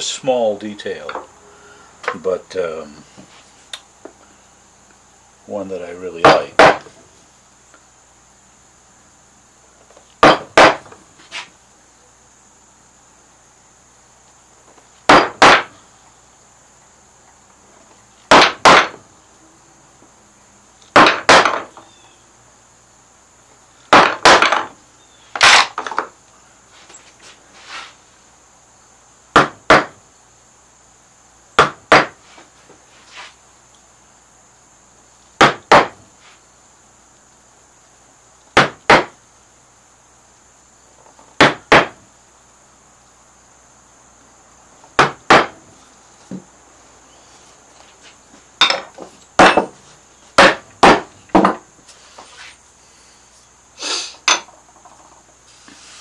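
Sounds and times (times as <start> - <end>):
wooden mallet striking gouge: 6.2 - 6.9, 45.0 - 45.6.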